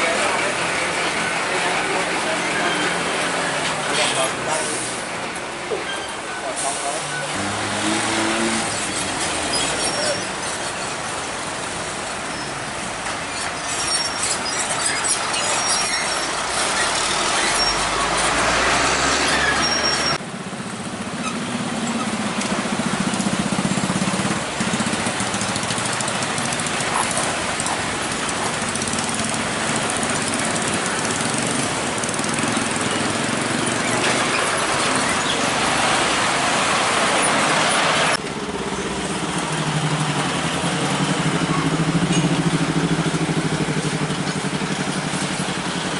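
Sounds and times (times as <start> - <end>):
heavy trucks driving past: 0.0 - 45.9
cars driving past: 6.4 - 13.3, 16.2 - 45.9
motorbikes driving past: 7.3 - 10.1, 20.0 - 45.9.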